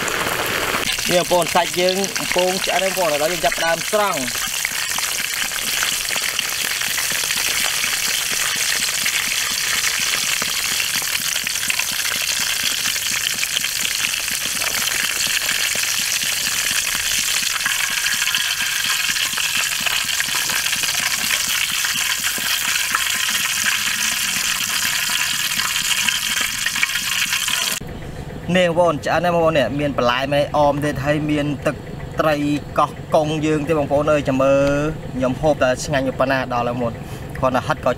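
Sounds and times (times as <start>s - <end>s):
meat sizzling in hot oil: 0.0s - 27.8s.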